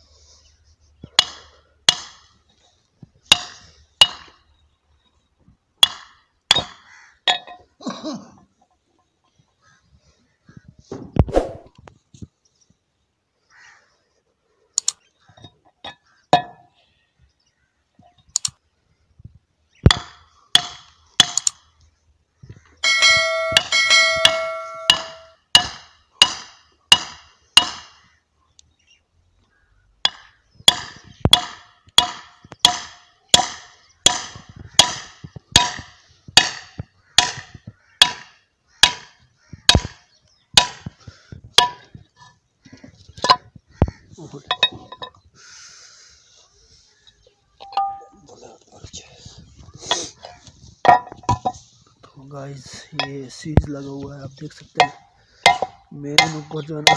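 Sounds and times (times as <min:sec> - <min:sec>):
hammer striking steel: 0:22.8 - 0:27.9, 0:47.6 - 0:48.2, 0:54.8 - 0:56.9.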